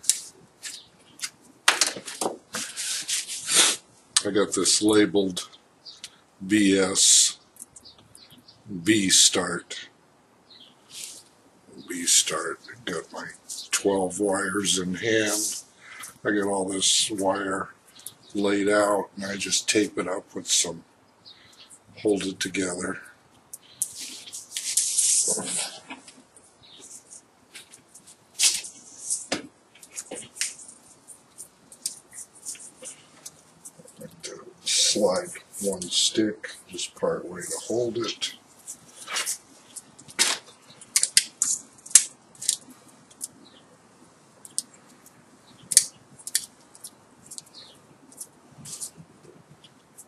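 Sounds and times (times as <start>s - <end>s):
wires rustling and ticking: 0.0s - 9.5s, 10.8s - 50.0s
tape ripping off roll: 40.1s - 42.6s.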